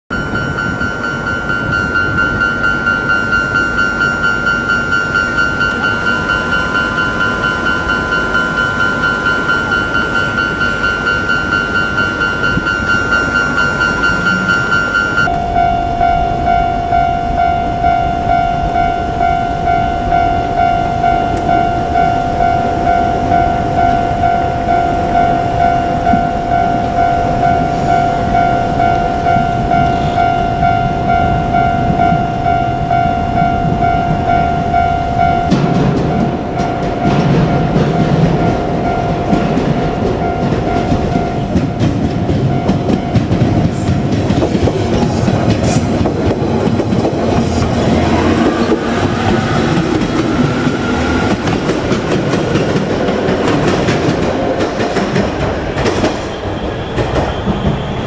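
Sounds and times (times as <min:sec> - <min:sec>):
lower-pitched bell: 0:00.1 - 0:52.9
level crossing warning bell: 0:00.1 - 0:55.9.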